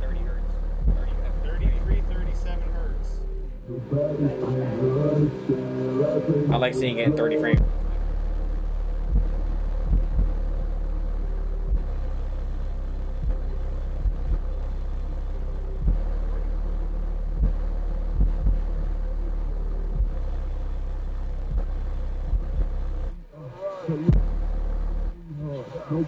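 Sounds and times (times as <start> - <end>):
subwoofer deep bass note: 0.0 - 26.0.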